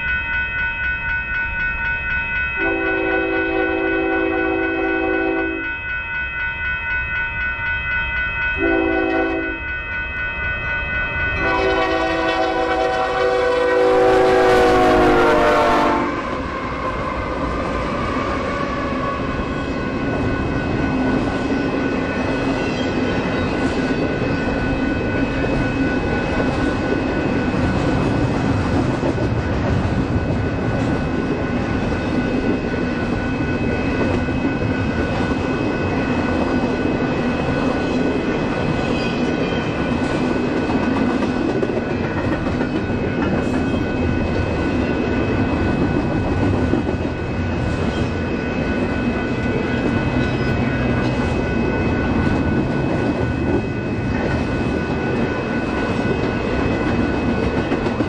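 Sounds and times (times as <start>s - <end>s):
locomotive air horn blasts: 2.6s - 5.6s, 8.6s - 9.6s, 11.4s - 16.3s
train wheels rumbling on rails: 10.6s - 58.0s.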